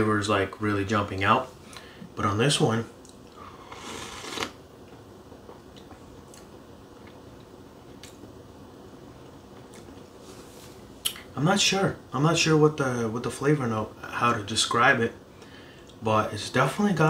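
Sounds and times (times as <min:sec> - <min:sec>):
person slurping from cup: 0:03.4 - 0:04.6.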